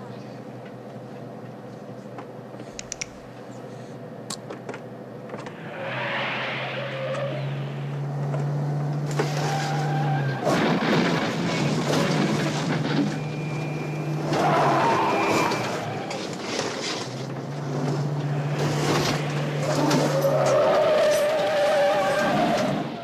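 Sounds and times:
road and tyre noise: 0.0s - 23.0s
vehicle engine accelerating: 5.5s - 9.9s, 10.5s - 23.0s.

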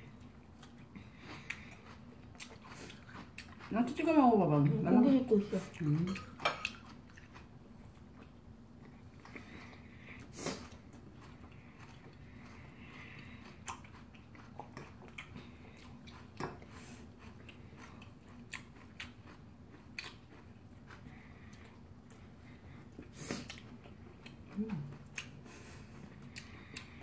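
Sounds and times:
people chewing: 0.0s - 27.0s.

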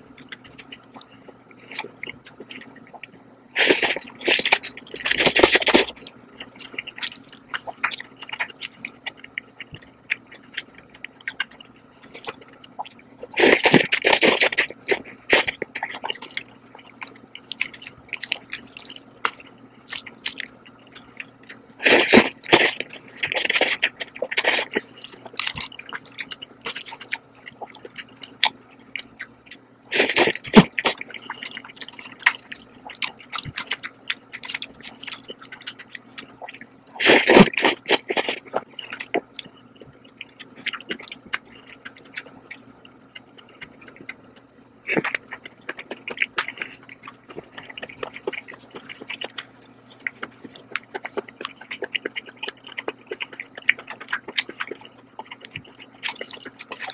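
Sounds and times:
faint low hum: 0.0s - 56.9s
wet chewing: 0.0s - 56.9s
noodles slurped loudly: 3.6s - 6.0s, 13.2s - 16.3s, 21.8s - 25.7s, 29.9s - 33.8s, 37.0s - 39.0s.

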